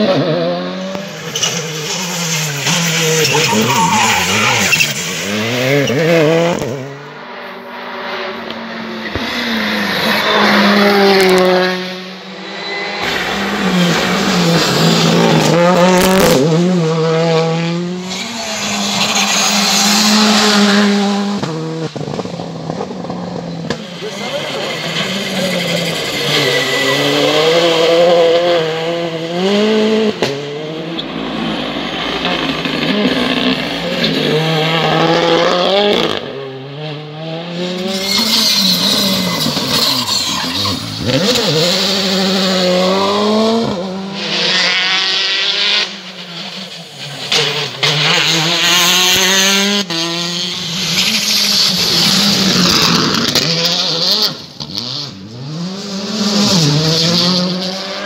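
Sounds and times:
rally cars revving: 0:00.0 - 0:58.0
tyre squeal: 0:01.1 - 0:06.2, 0:23.4 - 0:28.2, 0:37.7 - 0:42.5.

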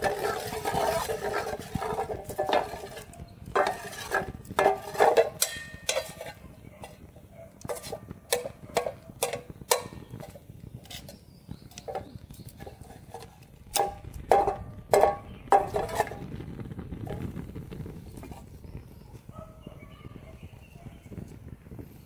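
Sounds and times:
metal tongs tapping a pan: 0:00.0 - 0:07.0, 0:07.6 - 0:16.2.

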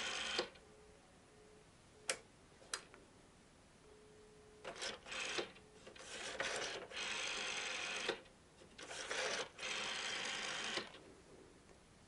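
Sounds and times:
rotary telephone dial whirring and clicking: 0:00.0 - 0:00.6, 0:04.6 - 0:11.0.

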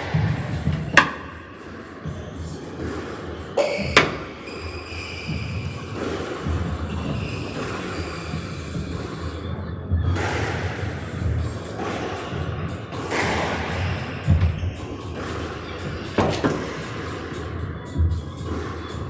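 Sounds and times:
shoes squeaking on floor: 0:02.1 - 0:19.0.

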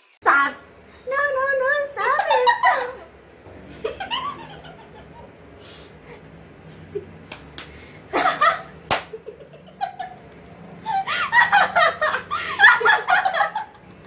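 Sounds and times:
young women laughing: 0:02.0 - 0:03.2, 0:03.8 - 0:05.4, 0:08.1 - 0:10.2, 0:10.8 - 0:13.9
sharp smacks: 0:08.9 - 0:09.2.

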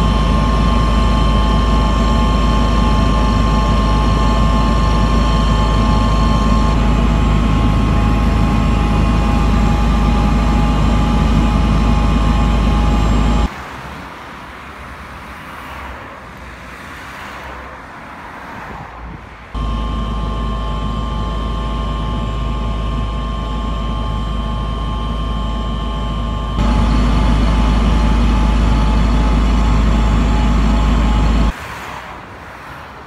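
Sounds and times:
faint whine: 0:00.0 - 0:13.5, 0:19.6 - 0:31.6
loud steady rumble: 0:00.0 - 0:13.5, 0:19.1 - 0:31.6
cars passing: 0:13.5 - 0:19.8, 0:31.5 - 0:33.0.

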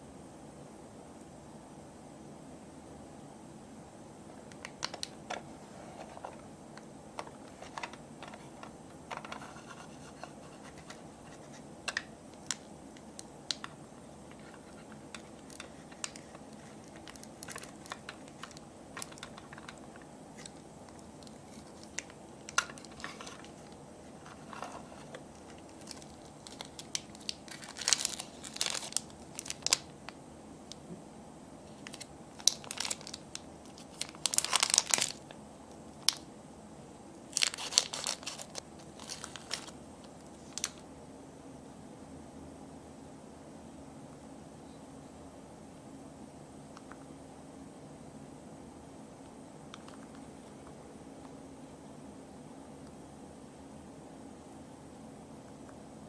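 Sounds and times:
plastic packet crinkling: 0:04.6 - 0:05.4, 0:10.5 - 0:29.9, 0:31.8 - 0:35.3, 0:37.3 - 0:39.8, 0:40.4 - 0:40.8.

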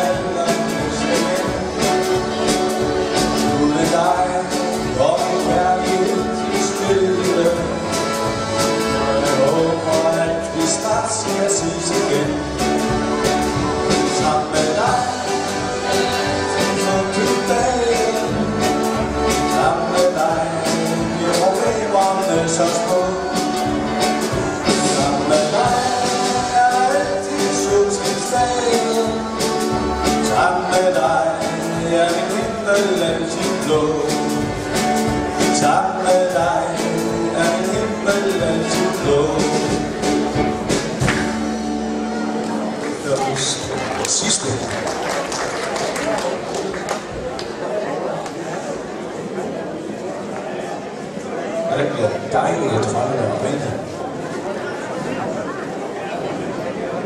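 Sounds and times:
drum kit beat: 0:00.0 - 0:42.2
accordions: 0:00.0 - 0:43.7
guitar: 0:00.0 - 0:47.6.

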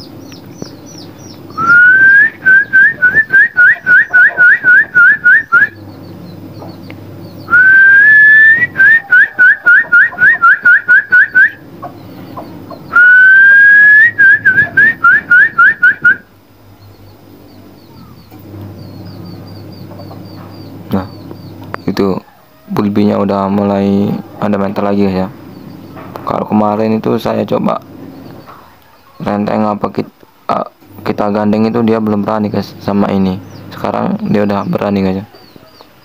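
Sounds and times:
loud shrill whistled call: 0:01.6 - 0:05.8, 0:07.5 - 0:11.6, 0:12.9 - 0:16.3.

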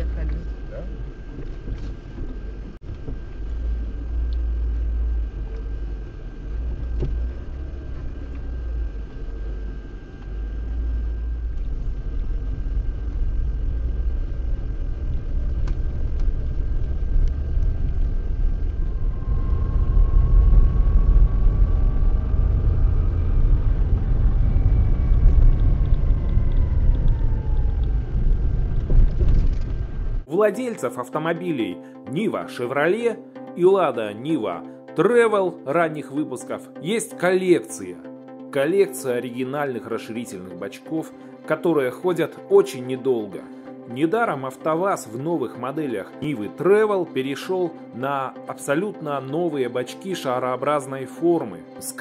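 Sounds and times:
car engine and road rumble: 0:00.0 - 0:30.3
faint whine: 0:00.0 - 0:52.0.

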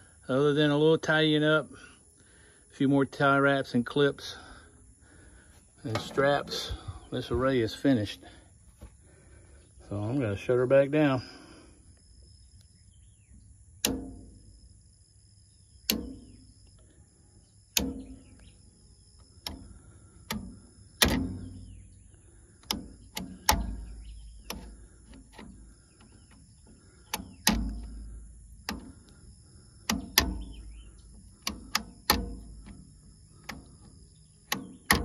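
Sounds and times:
circuit breakers clicking off: 0:15.8 - 0:16.3, 0:17.7 - 0:18.5, 0:19.2 - 0:21.7, 0:22.5 - 0:35.0.

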